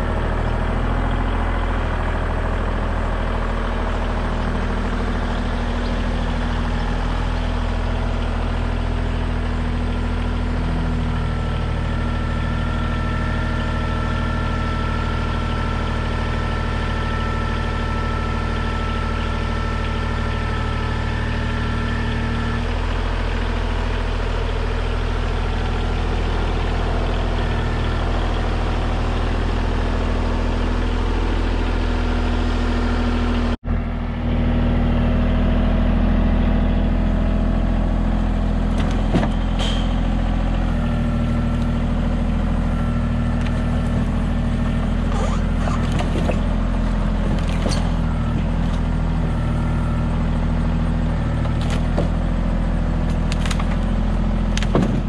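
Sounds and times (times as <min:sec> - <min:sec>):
tractor diesel engine running: 0:00.0 - 0:55.0
knocks of wood on wood: 0:54.6 - 0:55.0.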